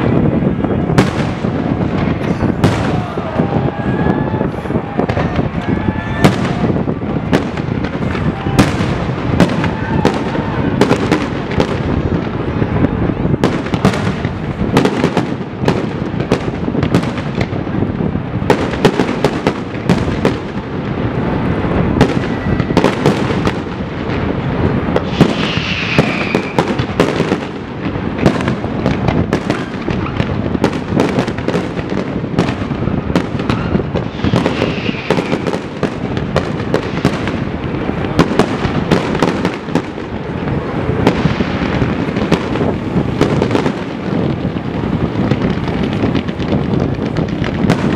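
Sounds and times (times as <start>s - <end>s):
fireworks crackling: 0.0s - 47.9s
firework shells bursting: 21.4s - 47.9s
falling whistle: 25.3s - 26.7s, 34.2s - 35.5s.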